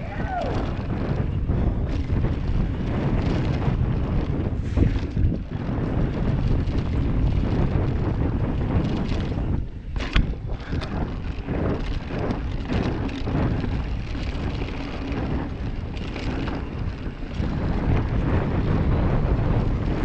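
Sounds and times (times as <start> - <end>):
bike tyres rolling on gravel: 0.0 - 20.0
wind buffeting microphone: 0.0 - 20.0.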